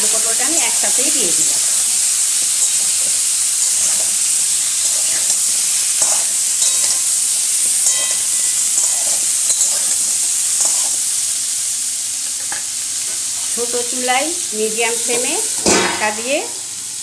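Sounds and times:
vegetables sizzling in hot oil: 0.0 - 17.0
spatula scraping a pan: 0.5 - 11.2.

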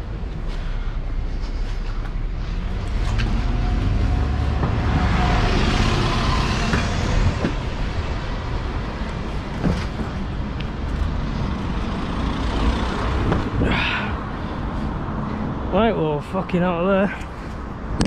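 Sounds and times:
road traffic noise: 0.0 - 18.0
vehicle passing close by: 2.4 - 9.0.

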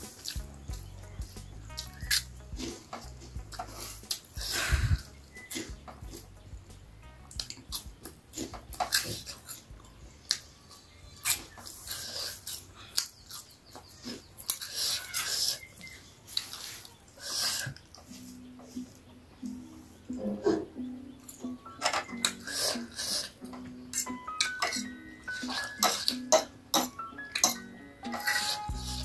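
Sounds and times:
mouth clicks: 0.0 - 10.5
person chewing noodles: 1.7 - 6.3, 7.4 - 18.2, 22.2 - 24.7, 28.2 - 29.0.

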